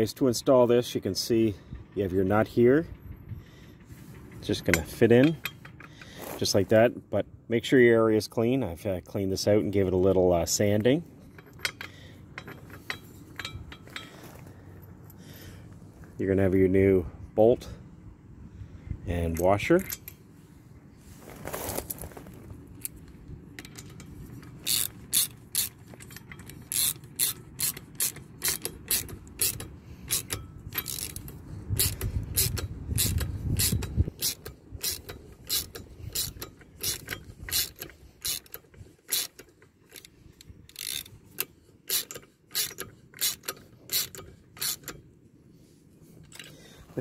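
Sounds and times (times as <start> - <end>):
hand ratchet clicking: 11.3 - 14.1, 22.8 - 45.0.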